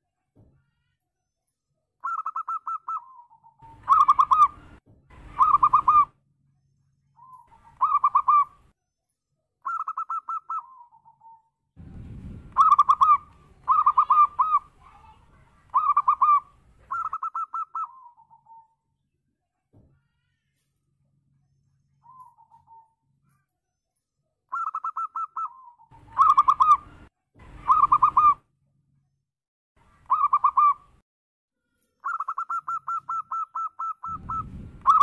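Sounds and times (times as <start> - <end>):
dove cooing: 2.0 - 6.1, 7.2 - 8.6, 9.7 - 11.4, 12.5 - 14.7, 15.7 - 18.7, 24.5 - 27.0, 27.6 - 28.4, 32.0 - 35.0.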